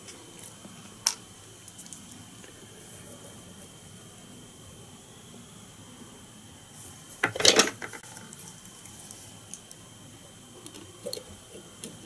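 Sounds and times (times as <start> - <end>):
tools rustling clatter: 7.2 - 8.2.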